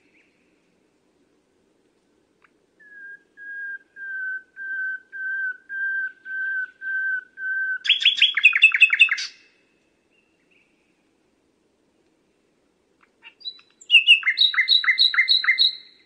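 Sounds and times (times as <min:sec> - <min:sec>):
nightingale singing: 0:02.4 - 0:11.0, 0:13.0 - 0:16.0.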